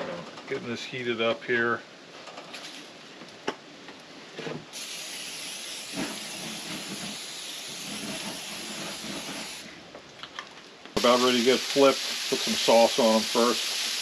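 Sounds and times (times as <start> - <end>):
chicken sizzling on a grill: 4.8 - 9.8, 11.0 - 14.0.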